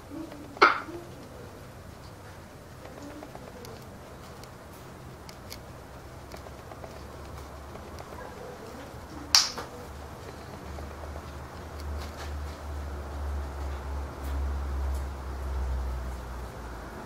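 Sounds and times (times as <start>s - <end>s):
sharp beak snap: 9.3s - 9.8s.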